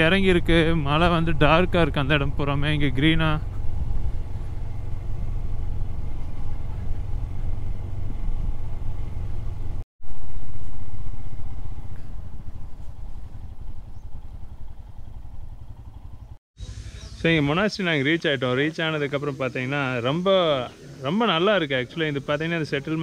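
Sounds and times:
rush of riding: 0.0 - 17.7
motorcycle engine rumble: 0.0 - 19.2.

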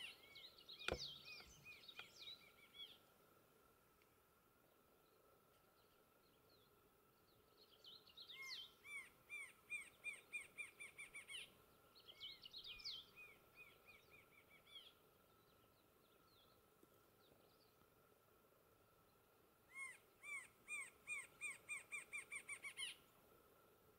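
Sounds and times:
bird singing repeated notes: 0.0 - 3.0.

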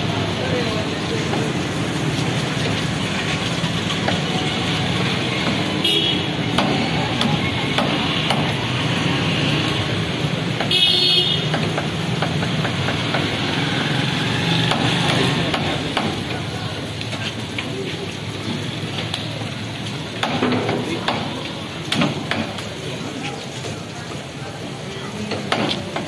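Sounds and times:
street traffic: 0.0 - 26.0
vehicle horn: 5.8 - 6.3, 10.7 - 11.5.

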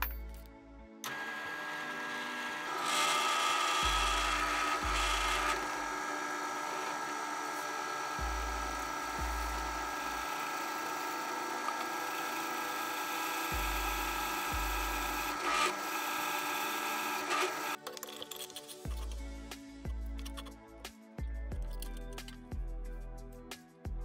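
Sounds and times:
drill press cutting metal: 1.0 - 17.8.

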